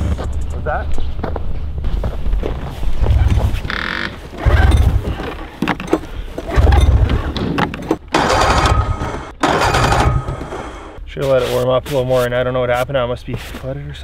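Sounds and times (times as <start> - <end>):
snowmobile engine cranking: 3.3 - 11.0.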